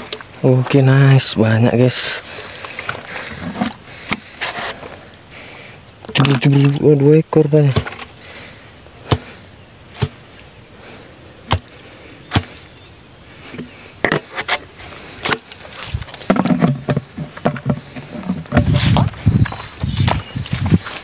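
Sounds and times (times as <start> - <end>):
insect drone: 0.0 - 21.0
footsteps through dry grass: 18.6 - 21.0.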